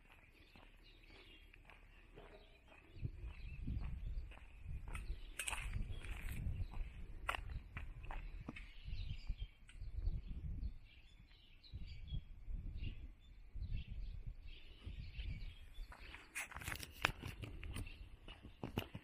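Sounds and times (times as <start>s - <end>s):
footsteps on pavement: 0.0s - 9.4s, 15.8s - 19.0s
small birds chirping: 0.0s - 19.0s.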